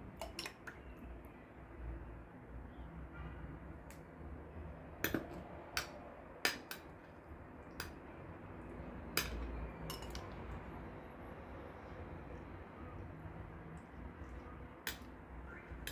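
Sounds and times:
metal spoon clinking on glass: 0.2s - 0.7s, 9.2s - 10.4s.

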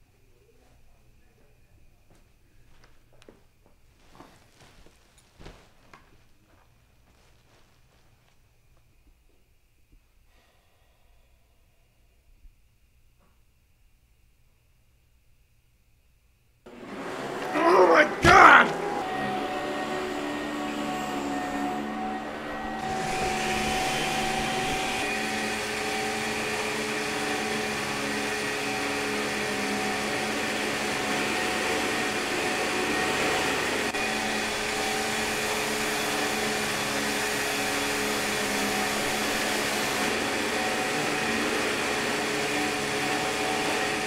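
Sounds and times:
vacuum cleaner running: 4.0s - 8.4s, 16.7s - 44.0s
blender running: 16.7s - 44.0s.

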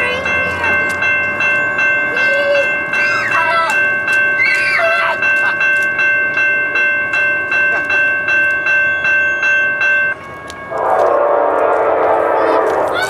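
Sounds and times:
crossing warning bell ringing: 0.0s - 13.0s
locomotive air horn: 10.7s - 13.0s.

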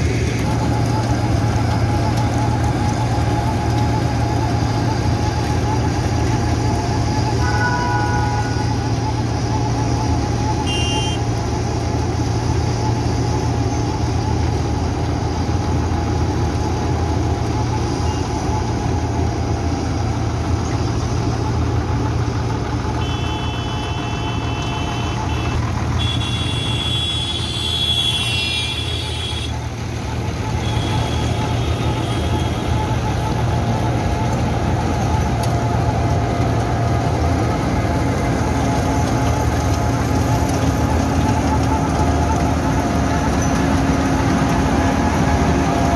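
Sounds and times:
diesel engine humming: 0.0s - 45.9s
milling drum grinding asphalt: 0.0s - 45.9s
high-pitched vehicle horn: 7.4s - 8.8s, 10.6s - 11.3s, 23.0s - 29.6s, 30.6s - 32.7s.

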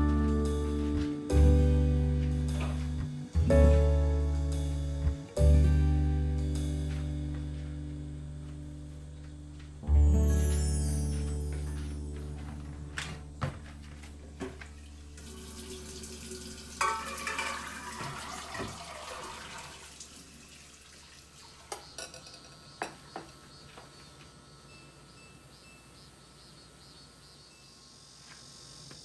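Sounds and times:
kitchen tap running: 14.7s - 22.6s
water splashing into a glass bowl: 15.2s - 22.4s
dishes clinking: 16.7s - 19.0s, 21.6s - 23.0s.

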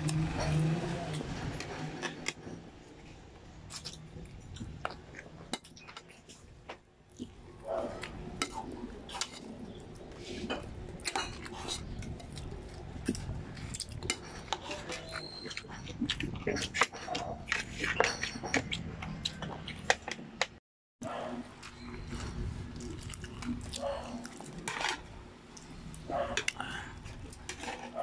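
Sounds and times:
person chewing and sucking: 21.6s - 24.7s.

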